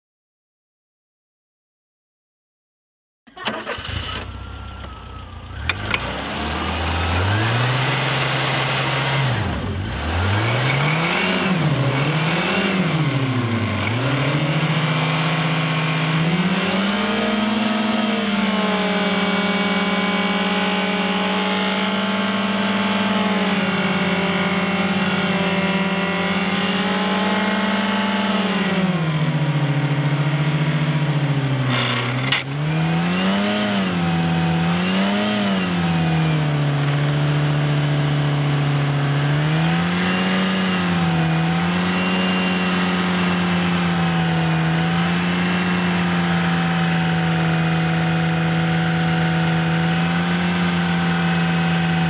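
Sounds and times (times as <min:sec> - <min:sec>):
car engine revving: 0:03.4 - 0:52.0
sharp short noise: 0:31.6 - 0:32.6.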